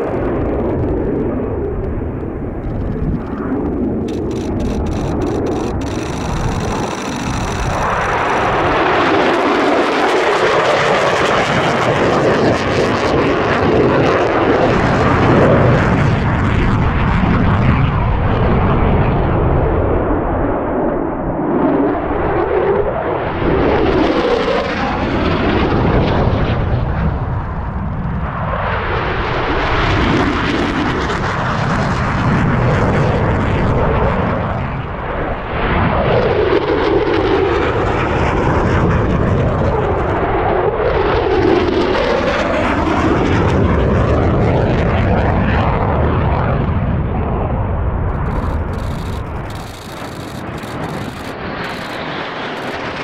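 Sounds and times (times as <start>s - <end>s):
jet engine roaring low overhead: 0.0s - 53.0s.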